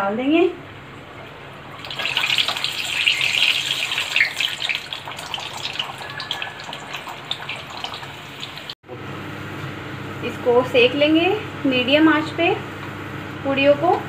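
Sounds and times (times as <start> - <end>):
dough deep-frying in oil: 1.0 - 8.8.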